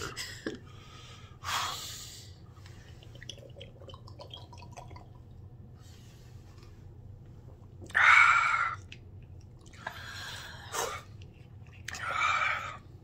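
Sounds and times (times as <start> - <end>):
people gulping: 2.8 - 5.5.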